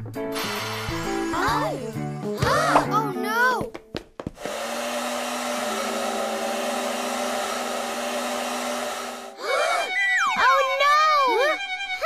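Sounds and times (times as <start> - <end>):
small electric motor whirring: 4.4 - 9.4.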